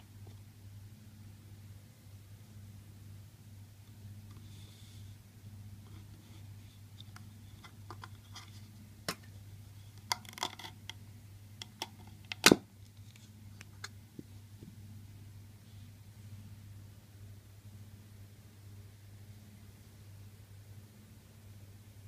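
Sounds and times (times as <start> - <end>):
metal case pieces clicking: 10.1 - 10.8.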